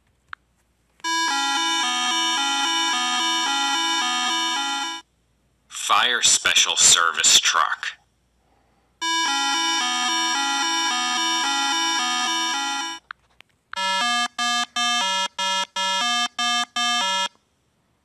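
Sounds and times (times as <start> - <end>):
buzzy electronic horn beeps: 1.1 - 5.0, 9.0 - 13.0
electronic two-pitch siren: 9.0 - 13.0.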